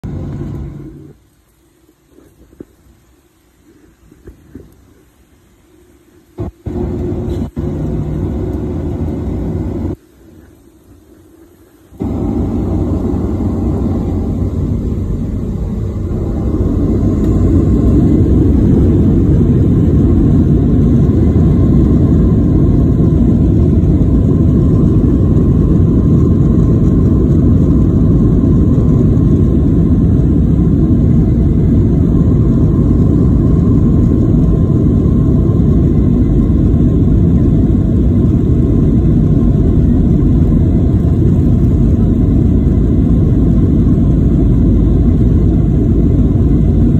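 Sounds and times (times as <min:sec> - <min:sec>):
jet engines roaring: 0:00.0 - 0:01.3, 0:06.4 - 0:46.9
runway roll rumble: 0:11.7 - 0:46.9.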